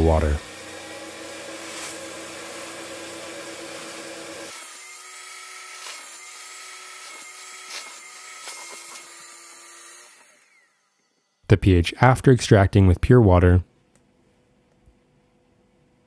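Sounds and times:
carpet extraction tool sucking water: 0.0 - 11.0
tool scraping carpet: 1.5 - 2.0.

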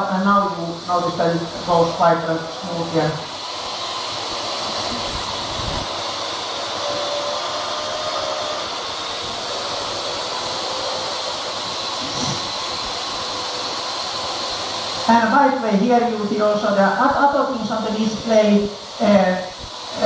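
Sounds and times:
drone rotors whirring: 1.4 - 15.1.

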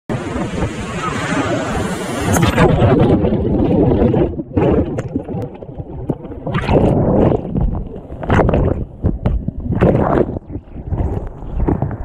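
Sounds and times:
splashing surges: 0.1 - 9.0
muffled underwater rushing: 0.1 - 12.0.

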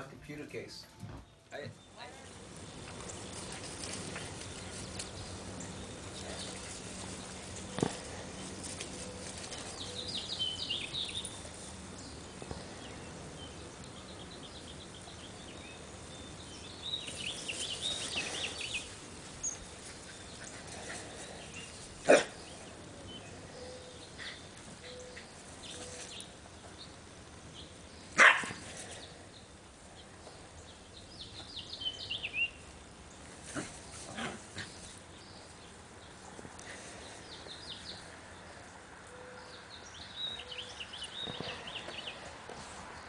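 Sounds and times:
dog barking: 22.0 - 22.4, 28.2 - 28.6.

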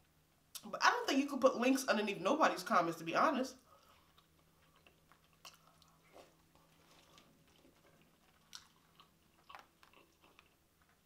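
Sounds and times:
person chewing food: 3.6 - 11.0.

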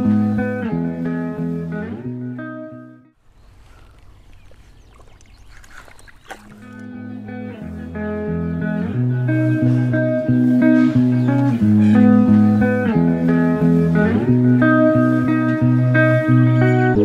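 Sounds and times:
guitar-led background music: 0.0 - 3.1, 6.6 - 17.0
low bass line: 6.8 - 17.0.

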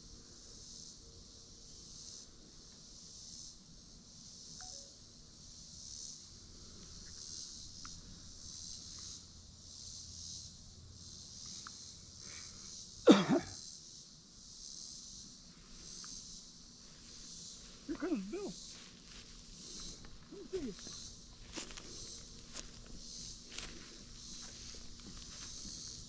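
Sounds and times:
insect chorus buzzing: 0.0 - 26.0
person coughing: 13.1 - 13.6.

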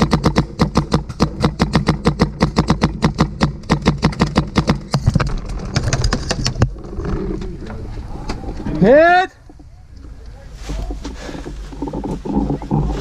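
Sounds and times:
paintball marker firing: 0.0 - 5.0.

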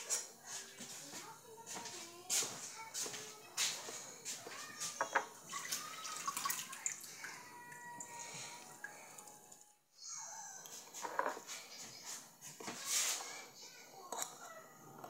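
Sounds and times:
water splashing into steel sink: 5.5 - 8.2
brush scrubbing: 11.5 - 13.4.

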